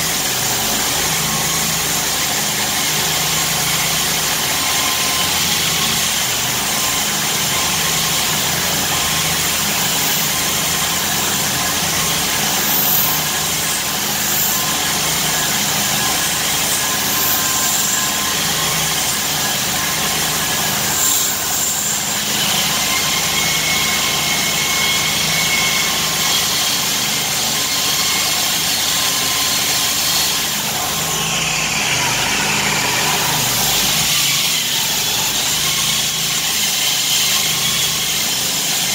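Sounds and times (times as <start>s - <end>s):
concrete saw cutting concrete: 0.0s - 38.9s.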